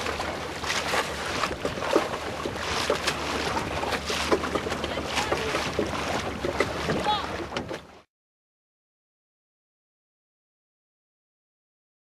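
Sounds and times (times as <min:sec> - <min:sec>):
water splashing against boat hull: 0:00.0 - 0:08.1.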